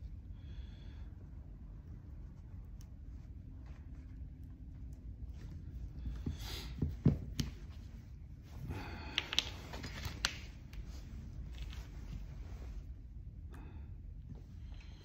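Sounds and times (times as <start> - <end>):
thread rustling through leather: 1.4 - 8.6, 9.2 - 13.2.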